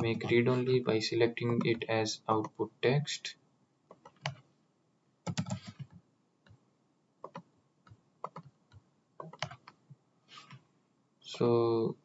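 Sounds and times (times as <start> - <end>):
mouse and keyboard clicking: 5.3 - 6.0.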